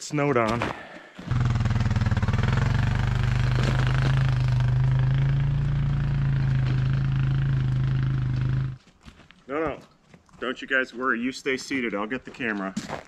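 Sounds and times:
atv engine running: 1.3 - 8.8.

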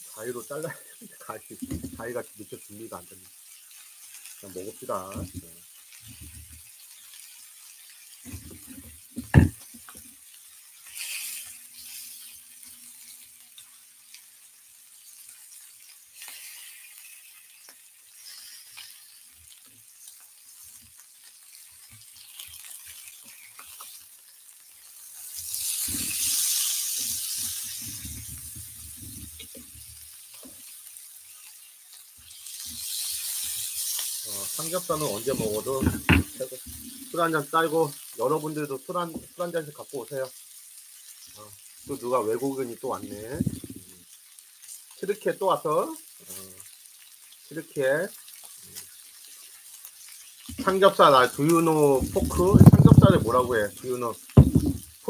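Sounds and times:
meat sizzling in a grill pan: 0.0 - 55.0
low knocks of meat handled: 9.2 - 9.6, 54.4 - 54.8
sharp knock: 54.4 - 54.8.

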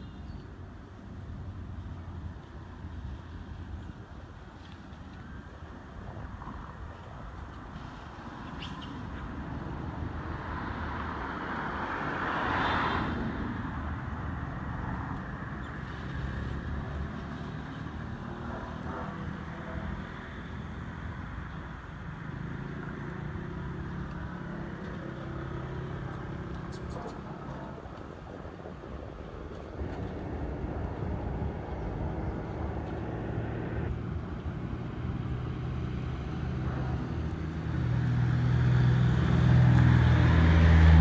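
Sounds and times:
low traffic rumble: 0.0 - 41.0
vehicle passing: 29.8 - 41.0.

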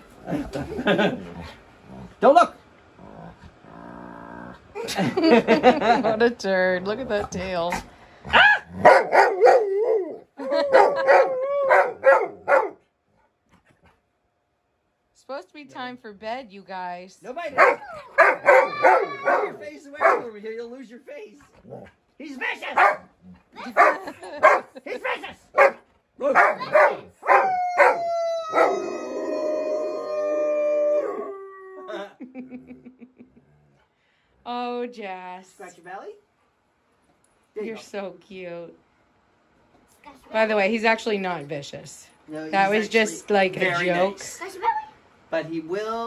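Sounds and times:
dog barking: 8.3 - 10.0, 10.7 - 12.8, 17.5 - 20.4, 22.7 - 28.8
dog howling: 8.3 - 12.8, 17.6 - 20.3, 25.6 - 32.1
dog vocalizing: 17.6 - 20.3.

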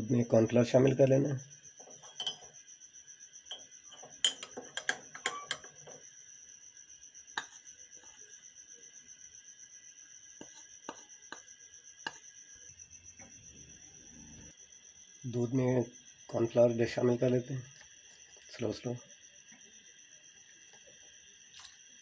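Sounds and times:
faint high whine: 0.0 - 22.0
metal spoon clinking on ceramic: 2.0 - 2.5, 3.5 - 5.8.

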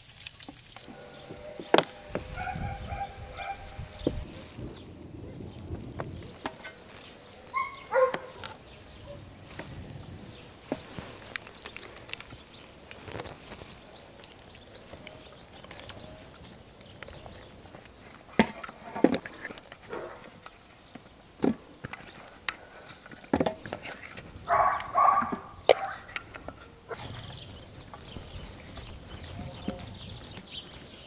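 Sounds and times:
steel bowl clinking on trays: 22.0 - 26.8.

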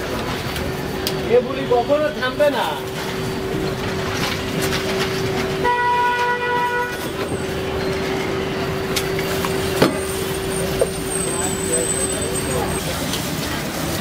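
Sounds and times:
street background hum: 0.0 - 14.0
vehicle horn: 5.5 - 7.4.

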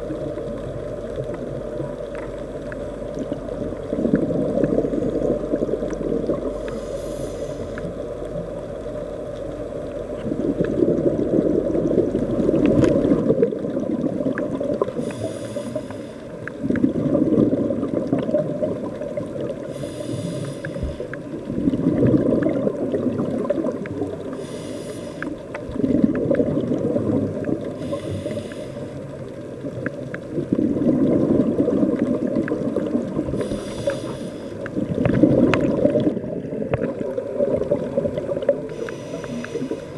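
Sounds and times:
exhaled air bubbling: 0.0 - 39.9
regulator hiss on inhale: 6.4 - 8.2, 14.8 - 16.5, 19.6 - 21.4, 24.3 - 25.6, 27.7 - 29.2, 33.2 - 34.8, 38.7 - 39.9.

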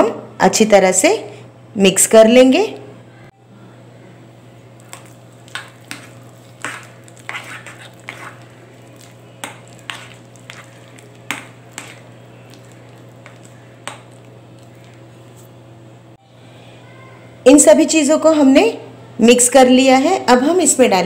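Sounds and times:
steady low hum: 2.8 - 17.4
spoon scraping glass bowl: 4.9 - 15.5.

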